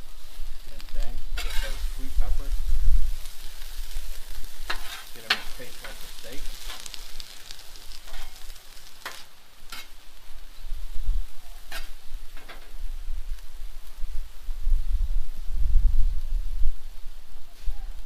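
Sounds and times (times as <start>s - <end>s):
meat sizzling on griddle: 0.0s - 18.0s
metal spatulas scraping and tapping: 1.4s - 1.8s, 4.7s - 6.0s, 11.7s - 12.7s.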